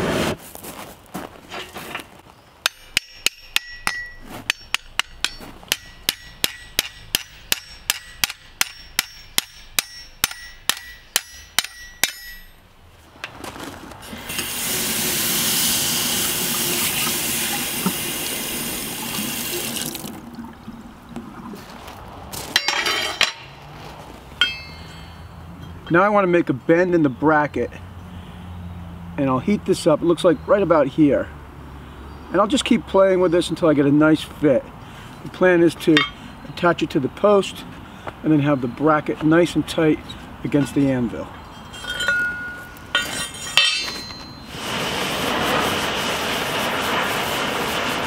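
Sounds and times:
hammer striking steel on anvil: 2.6 - 12.6, 22.6 - 23.5, 24.4 - 25.8, 35.9 - 36.2, 41.7 - 44.5
metal clinks: 2.6 - 12.7, 22.6 - 23.5, 24.4 - 26.0, 36.0 - 36.2, 41.5 - 44.5
loud steady hiss: 14.1 - 20.0, 44.5 - 48.0.

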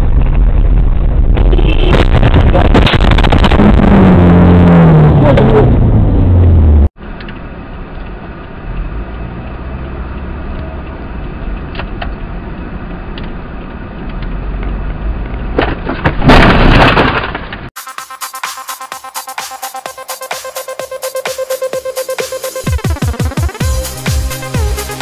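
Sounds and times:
loud noisy burst: 0.0 - 6.3
in-cabin road and engine noise: 0.0 - 17.8.

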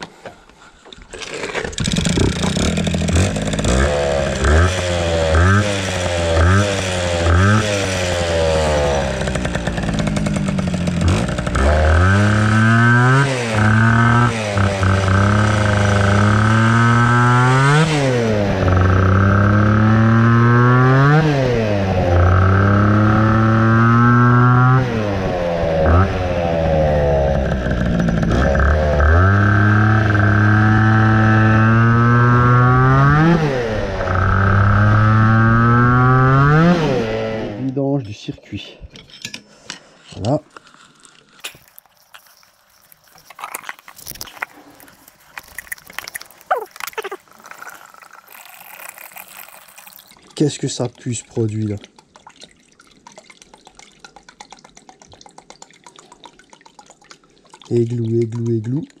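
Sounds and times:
moped engine revving: 1.8 - 37.7.

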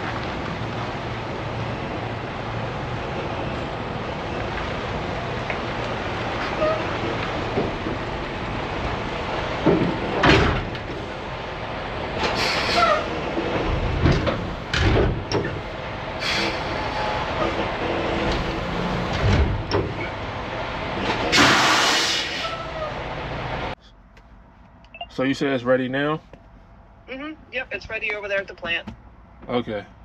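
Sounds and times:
semi-truck engine running: 0.0 - 30.0
air brake hissing: 12.2 - 13.1, 16.2 - 17.3, 21.3 - 22.8.

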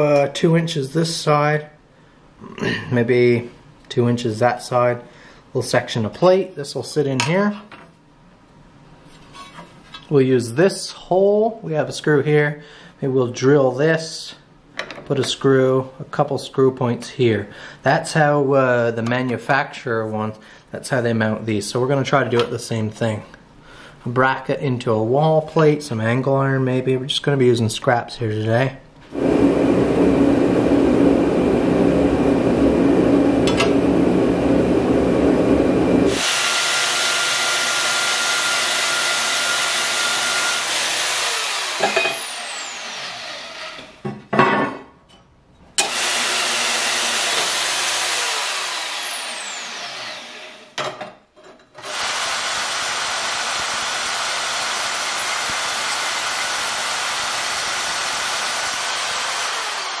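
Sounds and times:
band saw cutting steel: 36.1 - 44.0, 45.8 - 50.8, 51.8 - 60.0.

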